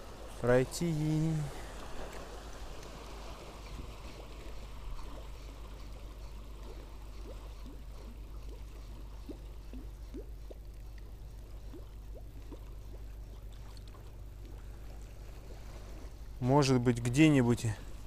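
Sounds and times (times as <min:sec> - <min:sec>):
steady low hum: 0:00.0 - 0:18.0
water lapping against boat hull: 0:00.0 - 0:18.0.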